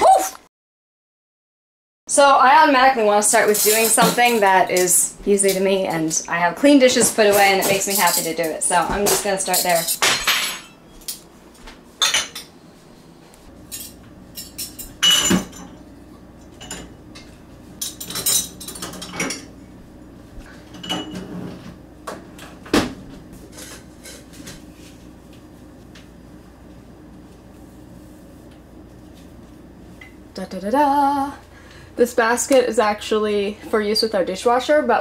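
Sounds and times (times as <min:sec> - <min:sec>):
dishes and cutlery clinking: 0:03.4 - 0:05.7, 0:06.9 - 0:11.2, 0:12.0 - 0:12.5, 0:13.7 - 0:15.8, 0:16.6 - 0:19.5, 0:20.7 - 0:21.7.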